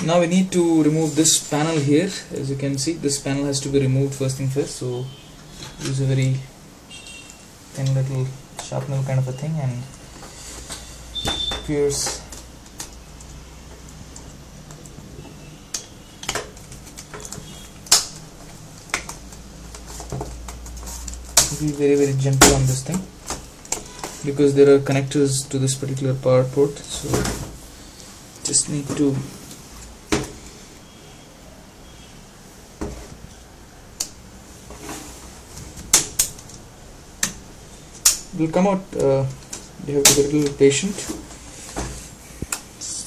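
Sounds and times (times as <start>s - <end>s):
sharp plastic clicks and snaps: 38.0s - 38.3s.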